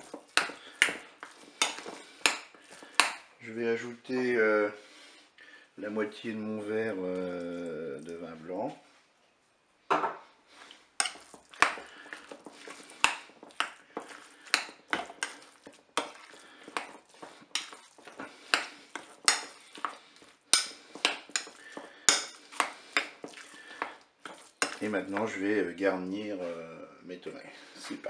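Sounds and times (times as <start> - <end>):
spoon scraping glass bowl: 11.0 - 25.3.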